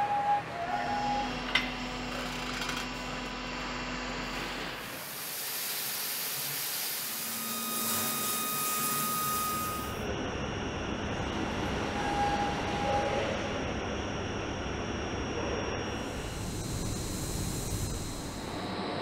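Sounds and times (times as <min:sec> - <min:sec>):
steady factory hum: 0:00.0 - 0:19.0
brief high tone: 0:07.4 - 0:10.0.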